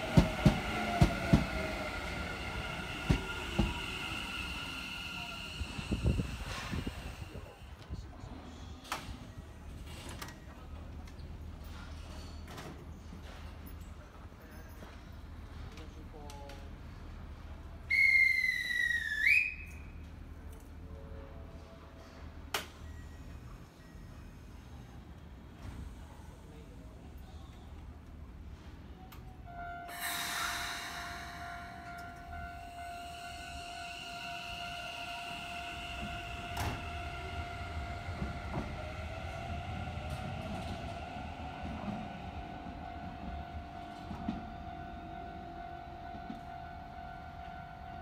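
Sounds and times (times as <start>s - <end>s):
electric train whine and rumble: 0.0s - 48.0s
shrill whistle blast: 17.9s - 19.9s.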